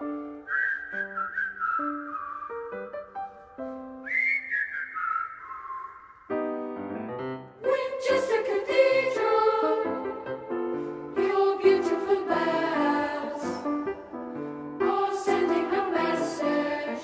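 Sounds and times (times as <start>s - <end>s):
whistled melody: 0.0s - 6.9s
piano notes: 1.9s - 4.0s, 6.3s - 16.9s
voices singing: 7.6s - 10.4s, 11.2s - 13.8s, 14.8s - 17.0s.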